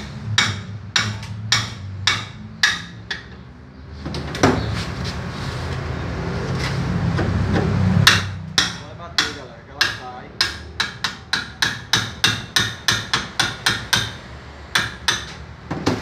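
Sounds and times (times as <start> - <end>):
hammer striking steel drift: 0.0 - 3.3, 8.0 - 14.2.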